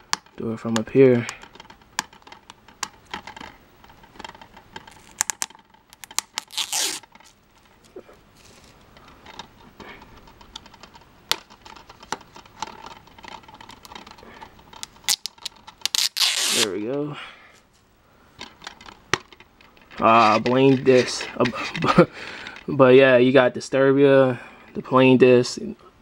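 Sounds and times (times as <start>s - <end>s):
plastic tearing: 4.2s - 8.8s, 10.6s - 16.8s.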